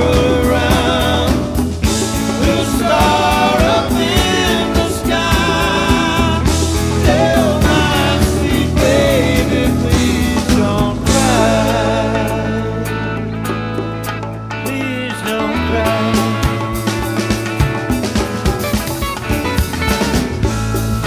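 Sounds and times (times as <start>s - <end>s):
person singing: 0.0s - 13.5s, 14.6s - 18.0s
instruments with steady beat: 0.0s - 14.9s.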